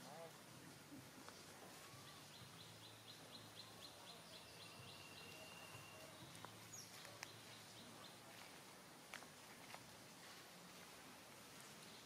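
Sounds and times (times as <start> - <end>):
bird chirping: 1.7 - 8.3.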